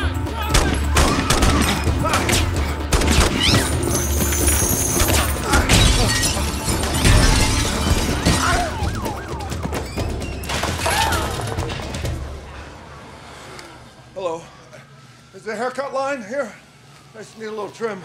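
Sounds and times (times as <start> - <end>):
action film music: 0.0 - 13.2
glass shattering: 3.4 - 8.8.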